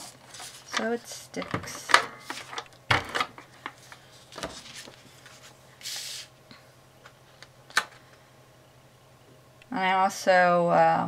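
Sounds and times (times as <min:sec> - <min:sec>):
faint steady hum: 0:00.0 - 0:11.0
paper rustling: 0:00.1 - 0:00.8, 0:03.8 - 0:06.3.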